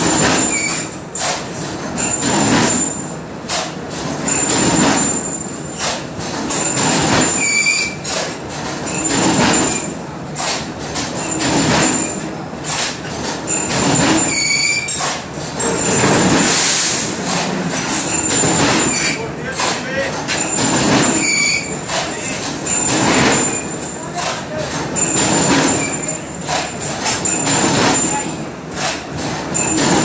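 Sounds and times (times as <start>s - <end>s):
pipe bending machine grinding: 0.0s - 3.2s, 4.0s - 30.0s
high metallic squeals: 0.3s - 1.1s, 6.5s - 8.2s, 11.2s - 12.3s, 13.5s - 15.0s, 18.0s - 19.3s, 20.2s - 24.2s, 24.8s - 28.4s, 29.6s - 30.0s.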